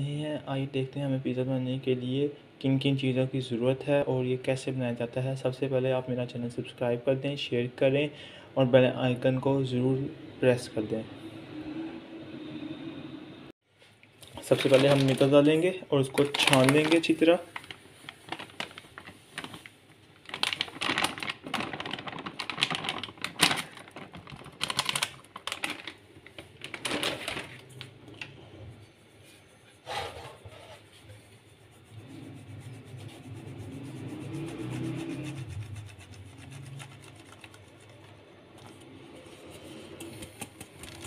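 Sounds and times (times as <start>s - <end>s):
plastic packet rustling: 14.3s - 27.9s, 36.5s - 41.0s.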